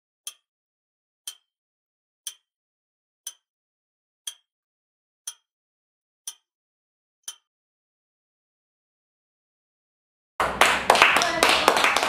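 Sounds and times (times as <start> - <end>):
clock ticking: 0.2 - 0.5, 1.2 - 1.5, 2.2 - 2.5, 3.2 - 3.5, 4.2 - 4.5, 5.2 - 5.5, 6.2 - 6.5, 7.2 - 7.5.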